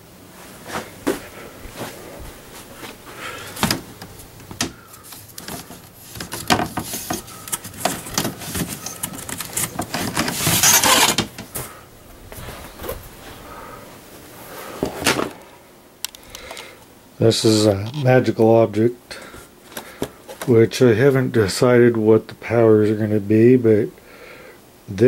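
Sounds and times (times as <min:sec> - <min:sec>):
rustling and scraping: 0:00.4 - 0:15.7
objects knocking and clicking: 0:04.4 - 0:11.5.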